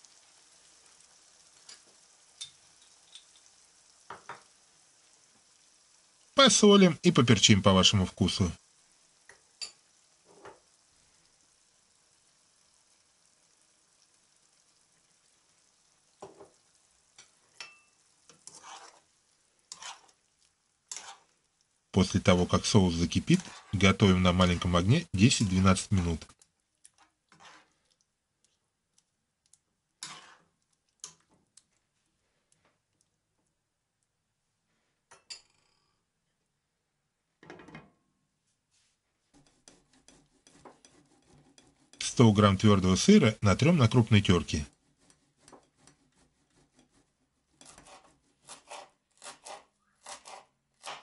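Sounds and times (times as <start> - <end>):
spoon scraping frying pan: 9.2 - 10.8, 16.2 - 21.5, 22.2 - 24.8, 25.4 - 28.0, 30.0 - 31.4, 39.3 - 43.0, 44.7 - 51.0.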